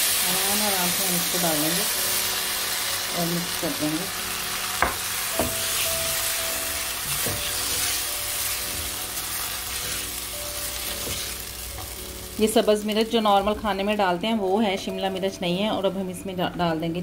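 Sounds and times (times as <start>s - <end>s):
sauce sizzling in a pan: 0.0s - 14.9s
spatula knocking against pan: 4.8s - 5.6s
spatula stirring sauce: 5.6s - 12.0s.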